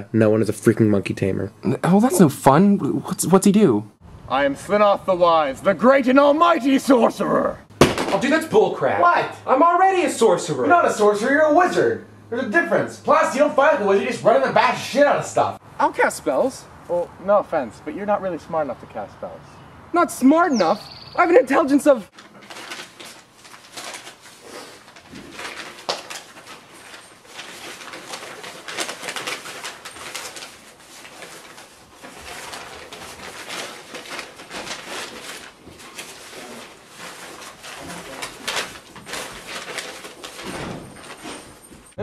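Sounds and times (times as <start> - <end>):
paper sheets rustling: 22.1 - 41.7.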